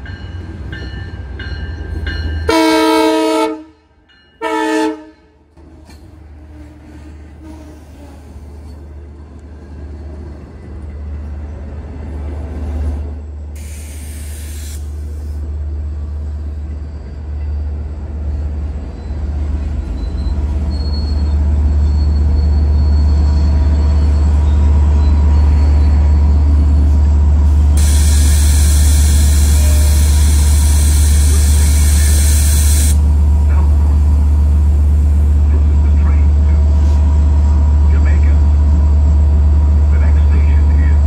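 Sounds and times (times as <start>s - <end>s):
train coaches rumbling over rails: 0.0s - 41.0s
short hiss: 13.6s - 15.4s, 27.8s - 33.0s
faint high wheel squeal: 16.4s - 18.0s, 18.8s - 27.0s.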